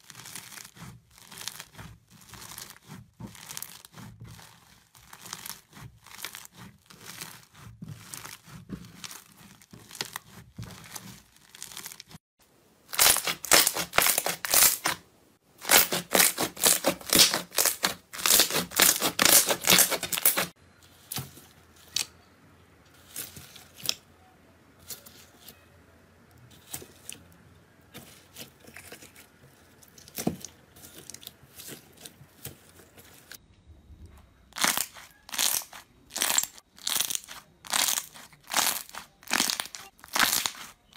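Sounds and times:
slime crackling and popping: 0.0 - 12.2, 12.9 - 15.0, 15.6 - 20.6, 34.5 - 40.9.

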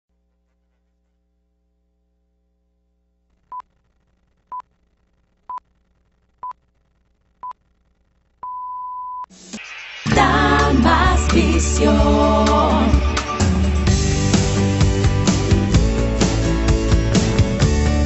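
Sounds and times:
music: 9.3 - 18.0.

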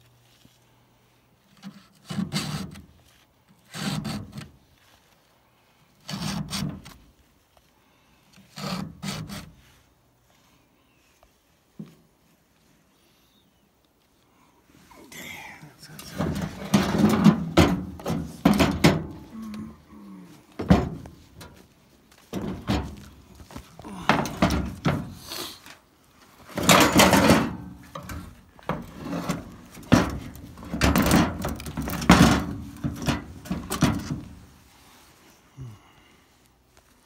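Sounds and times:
file rasping on chainsaw chain: 3.7 - 4.4, 8.5 - 9.5.

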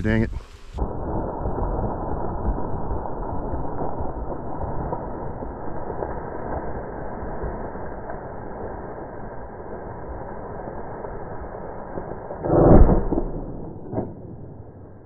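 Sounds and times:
muffled rumbling: 0.0 - 7.6.

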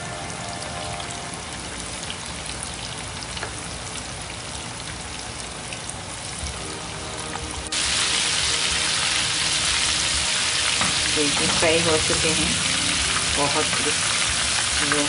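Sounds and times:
soft background music: 0.0 - 2.1, 6.4 - 15.0
chicken sizzling in hot oil: 0.0 - 15.0.

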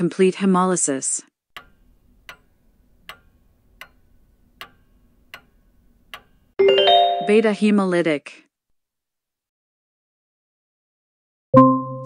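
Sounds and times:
clock ticking: 1.6 - 6.6
chime: 6.6 - 7.5.

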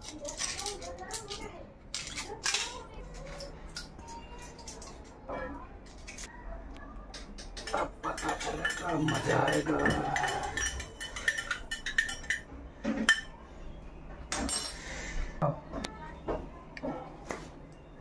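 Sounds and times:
spoon clinking in steel tumbler: 7.4 - 12.4.

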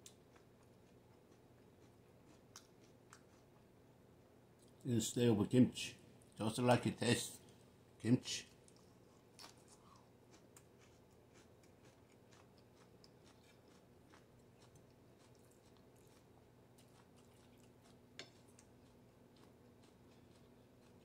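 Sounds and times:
chewing: 0.0 - 3.6, 8.6 - 21.0.

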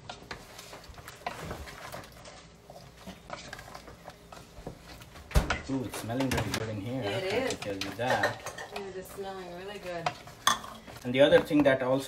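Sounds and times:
wooden spatula scraping metal pot: 0.0 - 5.1.

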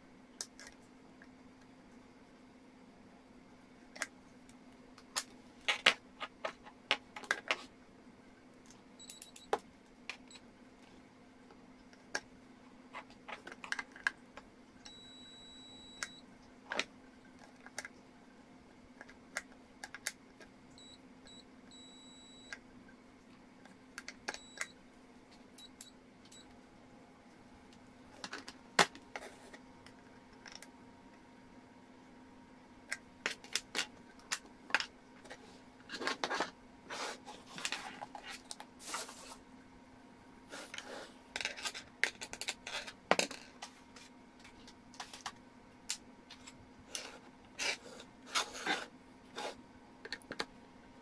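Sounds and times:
multimeter beeps: 9.0 - 9.6, 14.9 - 16.2, 20.8 - 22.6, 24.3 - 24.8, 25.6 - 26.5.

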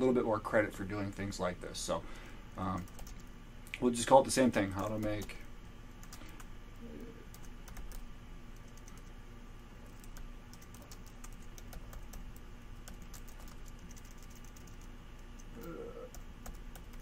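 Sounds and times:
faint steady hum: 0.0 - 17.0
keyboard typing: 2.7 - 3.3, 4.5 - 6.5, 7.3 - 9.1, 9.8 - 17.0.

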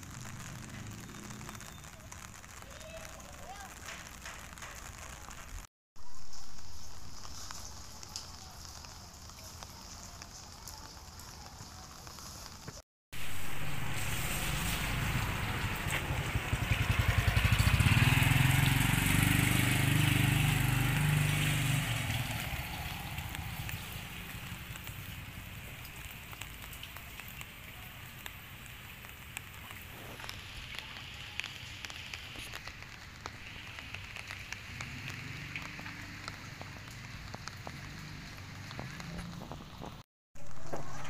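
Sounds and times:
small clicks and ticks: 0.1 - 5.7
outdoor hiss: 0.8 - 39.1
vehicle engine passing by: 13.3 - 25.4, 34.2 - 39.8.

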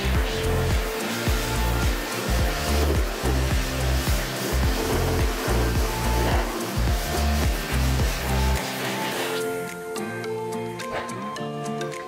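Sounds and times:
pressure washer jet hissing: 0.0 - 10.0
background music with steady beat: 0.0 - 12.0.

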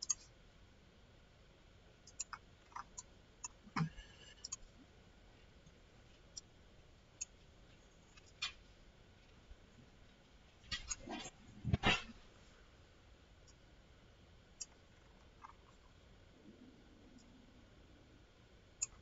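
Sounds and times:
computer mouse clicking: 0.0 - 0.3, 2.0 - 4.6
faint room noise: 0.0 - 19.0.

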